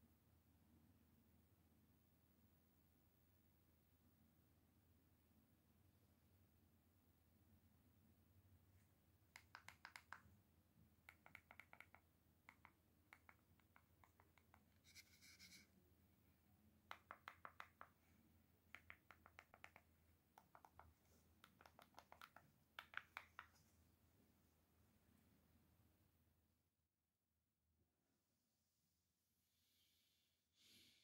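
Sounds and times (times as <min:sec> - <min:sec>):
keyboard keys clicking: 0:09.4 - 0:10.2, 0:11.0 - 0:14.7, 0:18.7 - 0:23.5
short scratchy rub: 0:14.8 - 0:15.7.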